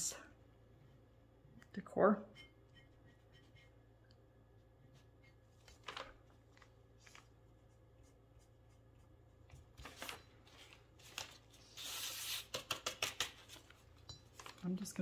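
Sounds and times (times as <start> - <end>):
paper rustling: 5.3 - 14.9.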